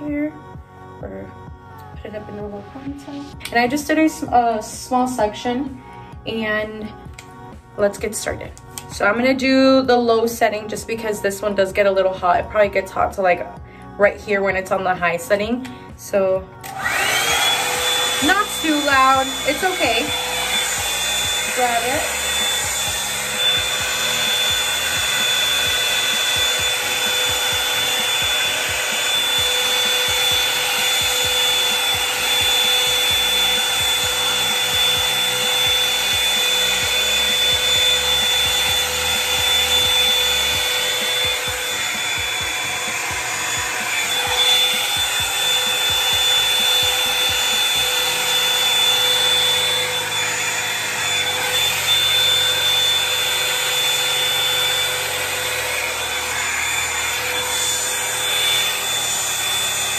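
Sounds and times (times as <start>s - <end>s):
hot-air brush blowing: 2.7s - 59.9s
high motor whine: 16.6s - 59.9s.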